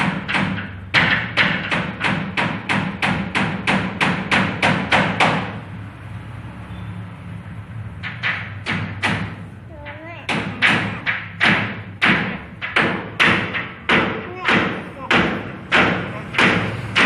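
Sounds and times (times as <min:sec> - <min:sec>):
rapid knocks: 0:00.0 - 0:05.6, 0:08.0 - 0:17.0.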